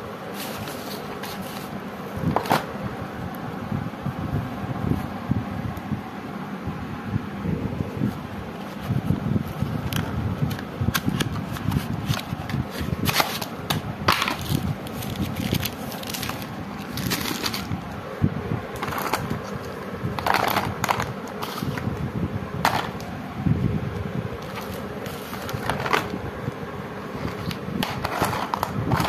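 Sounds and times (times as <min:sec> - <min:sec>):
plastic wrap crinkling: 0:14.2 - 0:17.8.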